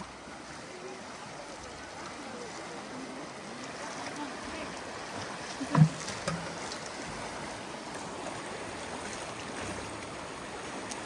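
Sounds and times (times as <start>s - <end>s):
creek water running: 0.0s - 11.0s.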